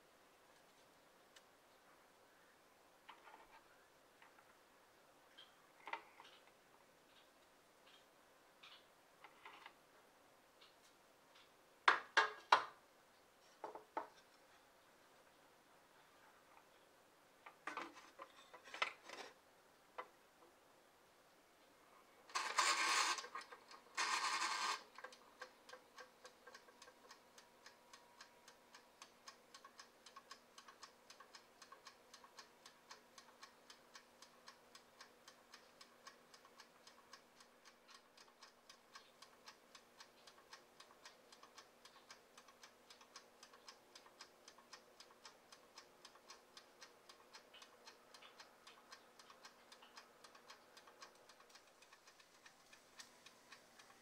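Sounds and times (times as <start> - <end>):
timer dial ratcheting whirr: 22.3 - 54.0
timer ticking: 22.3 - 54.0.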